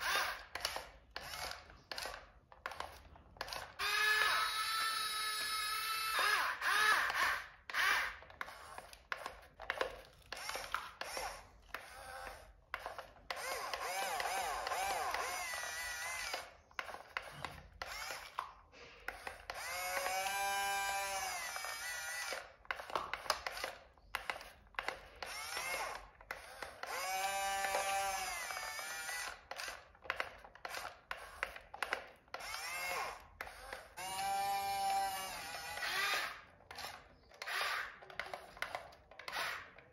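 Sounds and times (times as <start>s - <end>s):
plastic gears clicking and rattling: 0.0s - 18.4s, 19.1s - 39.9s
toy electric motor whining: 0.0s - 39.9s.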